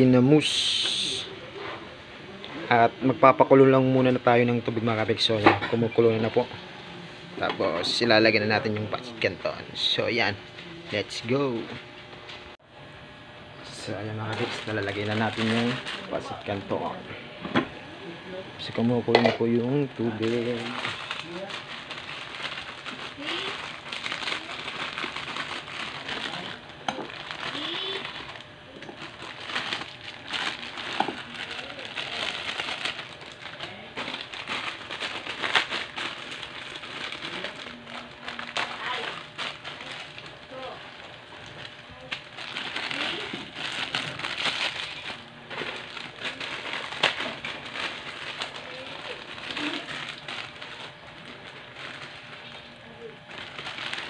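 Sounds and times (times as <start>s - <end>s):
plastic packet crinkling: 14.2s - 16.9s, 19.6s - 54.0s.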